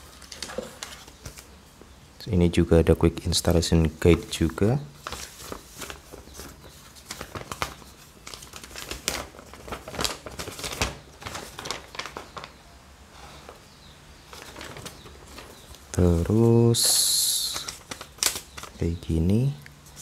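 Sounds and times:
paper rustling: 0:00.0 - 0:01.6, 0:03.8 - 0:12.6, 0:14.3 - 0:19.0.

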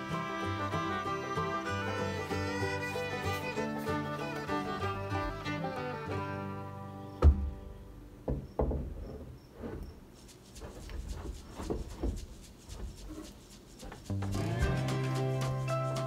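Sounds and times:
string band music: 0:00.0 - 0:07.2, 0:14.0 - 0:16.0
wooden beam knocking: 0:07.2 - 0:07.6, 0:08.2 - 0:09.3.

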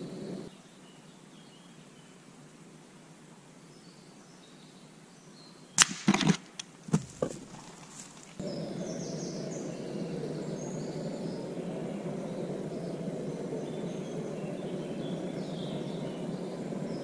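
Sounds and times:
birds chirping: 0:00.0 - 0:02.2, 0:06.5 - 0:17.0
air rifle shot: 0:05.8 - 0:06.5
squirrel falling with thuds: 0:05.8 - 0:08.4.

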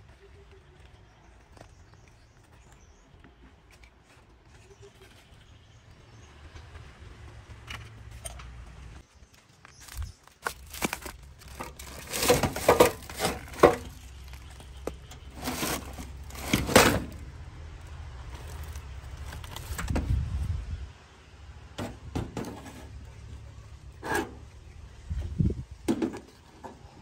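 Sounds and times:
junk clicking and clattering: 0:10.7 - 0:17.2.

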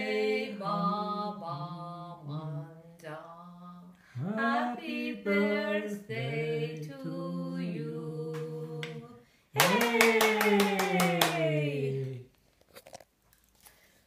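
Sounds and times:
rhythmic hand-clapping: 0:09.6 - 0:11.8.

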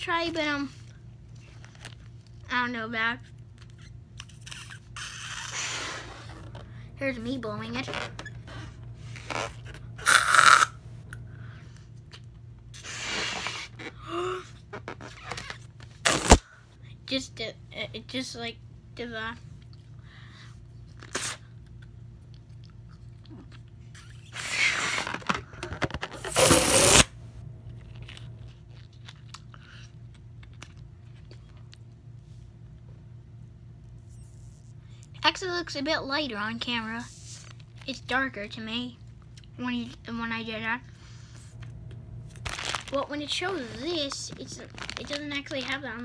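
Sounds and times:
squeaky balloon tone: 0:03.8 - 0:06.5
breaths blown into balloon: 0:12.7 - 0:14.6
puffs of breath into balloon: 0:12.8 - 0:13.8, 0:24.3 - 0:25.2
balloon rustles and clicks: 0:24.0 - 0:27.1.

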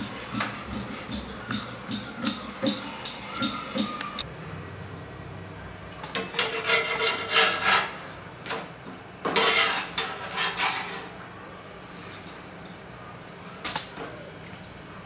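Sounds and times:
metal spatula scraping griddle: 0:00.0 - 0:03.0, 0:06.2 - 0:08.2, 0:09.3 - 0:11.2.

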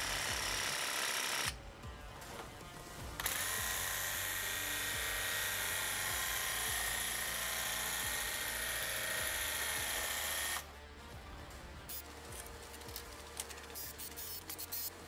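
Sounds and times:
paint spray hissing: 0:13.8 - 0:15.0.

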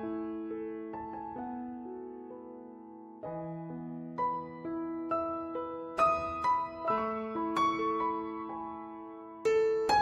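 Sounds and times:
slow soft piano music: 0:00.0 - 0:10.0.

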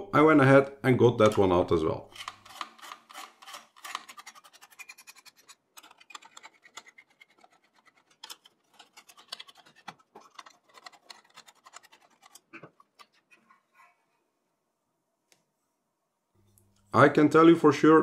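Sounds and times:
screwdriver clicking on screws: 0:02.1 - 0:13.1.

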